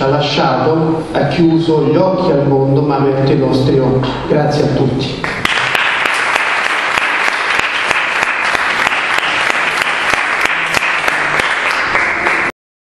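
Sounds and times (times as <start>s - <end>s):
loud individual hand claps: 5.2s - 12.5s
audience applauding: 5.2s - 12.6s.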